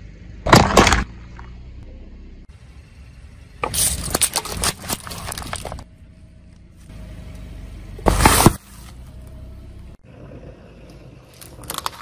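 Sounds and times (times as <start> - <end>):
car running: 0.0 - 12.0
plastic cups cracking and squishing: 3.7 - 5.9, 11.3 - 12.0
plastic object crunching: 3.7 - 5.9, 11.3 - 12.0.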